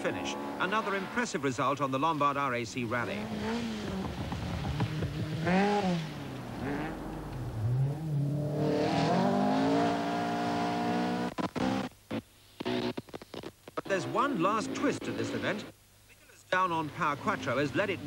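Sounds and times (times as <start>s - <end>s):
rally car engine revving: 0.0s - 1.4s, 3.0s - 15.7s.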